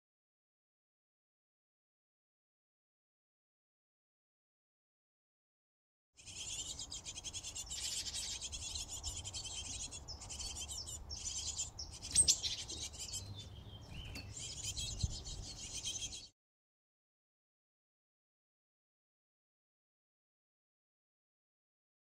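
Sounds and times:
nestlings begging calls: 6.2s - 16.3s.

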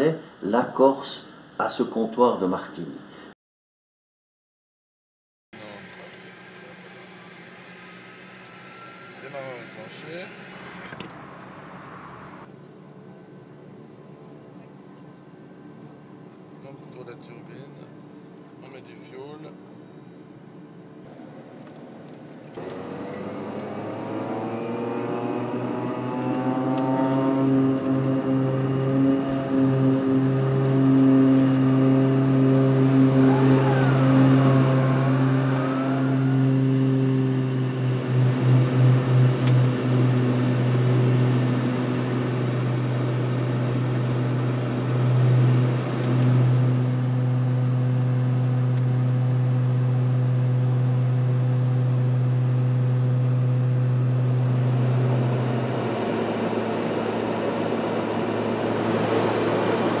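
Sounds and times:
propeller aircraft drone: 5.6s - 18.6s, 19.5s - 60.0s
broad rushing noise: 22.6s - 44.3s.

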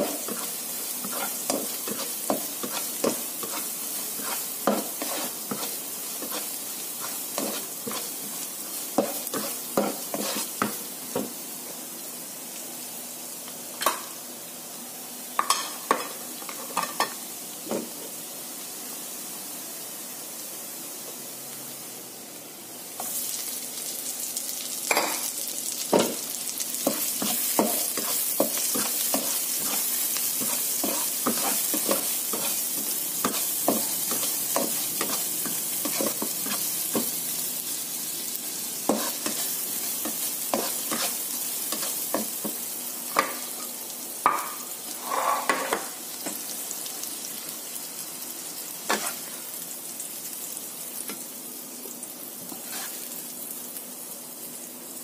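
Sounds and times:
spatula scraping a pan: 0.0s - 8.2s, 9.0s - 10.8s, 26.8s - 37.1s, 38.9s - 42.6s, 44.9s - 45.9s, 48.9s - 49.4s, 52.5s - 53.1s
vegetables sizzling in oil: 0.0s - 55.0s.

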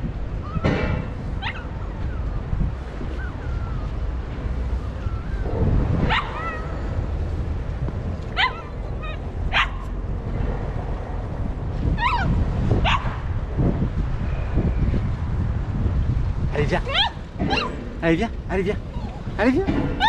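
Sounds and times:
dog yelping: 1.4s - 2.3s, 3.1s - 4.0s, 4.8s - 6.9s, 8.4s - 9.9s, 12.0s - 13.1s, 16.8s - 17.8s, 18.8s - 20.0s
dog whining: 1.4s - 2.4s, 3.0s - 4.0s, 4.8s - 5.5s, 6.1s - 6.9s, 8.4s - 9.8s, 12.0s - 12.4s, 16.8s - 17.8s, 18.8s - 20.0s.

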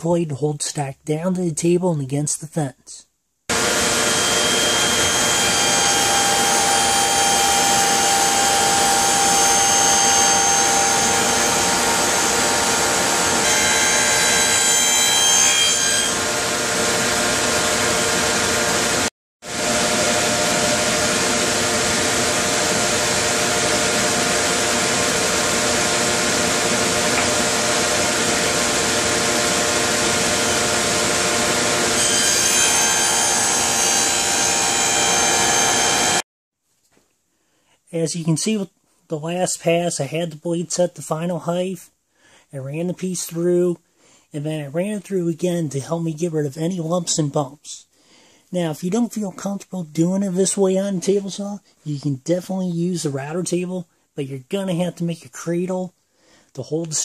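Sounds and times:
table saw cutting groove: 3.5s - 36.2s.

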